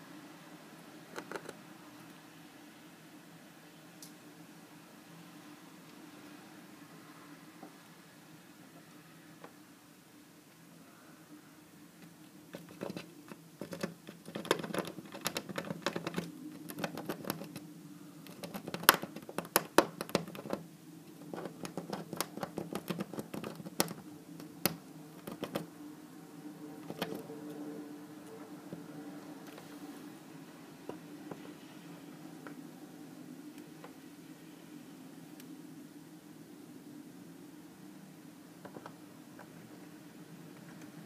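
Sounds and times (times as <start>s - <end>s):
faint low hum: 0.0s - 41.0s
squirrel scratching at glass: 1.1s - 1.6s, 12.5s - 17.6s, 18.2s - 20.6s, 21.2s - 25.7s, 26.8s - 27.3s.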